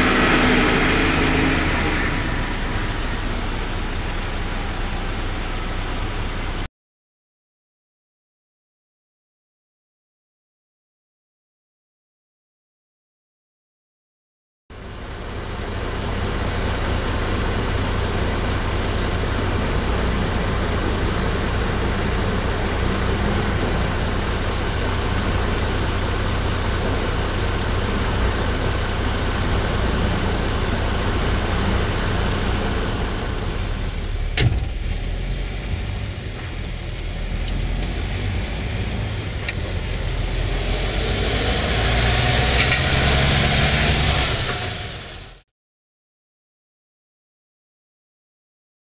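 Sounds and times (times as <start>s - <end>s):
truck diesel engine running: 0.0s - 6.7s, 14.8s - 45.4s.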